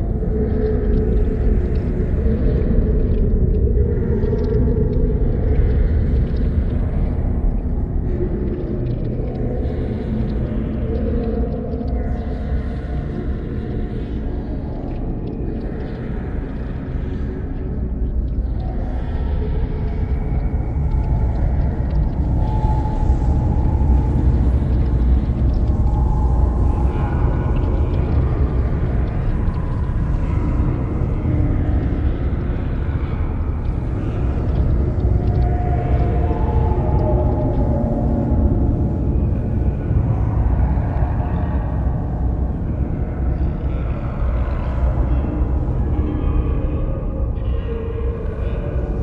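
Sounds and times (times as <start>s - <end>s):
faint ticks: 0.3s - 39.0s
droning held tones: 7.1s - 49.0s
dense low rumble: 17.9s - 46.4s.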